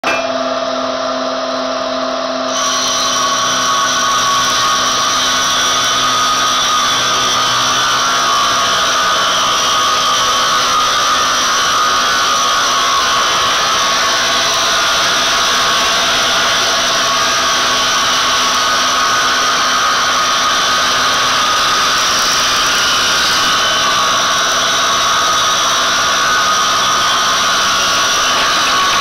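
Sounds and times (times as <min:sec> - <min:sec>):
circular saw ripping wood: 0:02.5 - 0:29.0.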